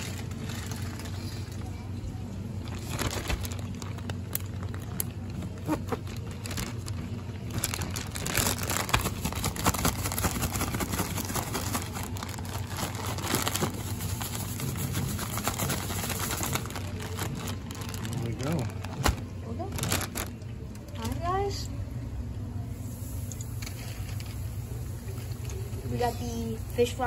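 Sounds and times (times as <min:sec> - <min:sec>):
plastic bag crinkling and rustling: 0:00.0 - 0:21.6.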